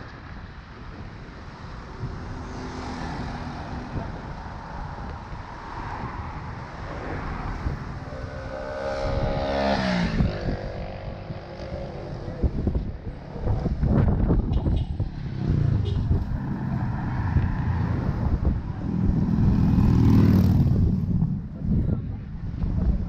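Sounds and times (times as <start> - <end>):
low traffic rumble: 0.0 - 23.0
vehicle engine passing by: 13.4 - 21.3.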